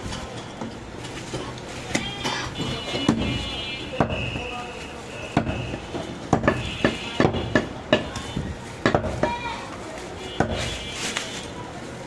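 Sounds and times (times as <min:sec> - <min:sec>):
cleaver chopping meat on wood: 0:06.3 - 0:08.1.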